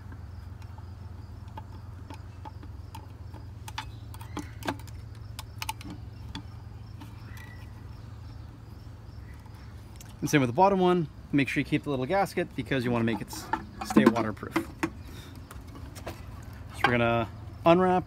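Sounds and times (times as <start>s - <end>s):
steady low hum: 0.0s - 18.0s
clicks of small metal parts: 1.4s - 7.7s.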